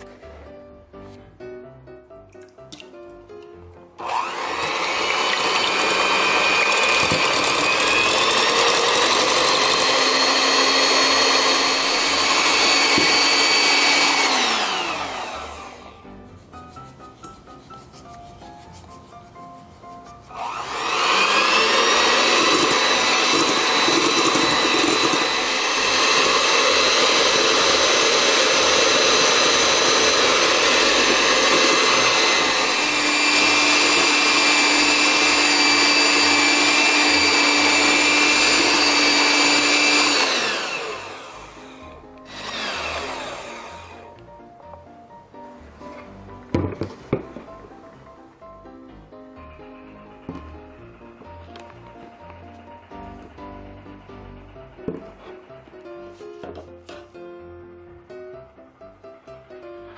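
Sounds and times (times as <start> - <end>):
electric hand mixer whining: 4.0 - 16.2, 20.2 - 44.2, 49.5 - 55.9.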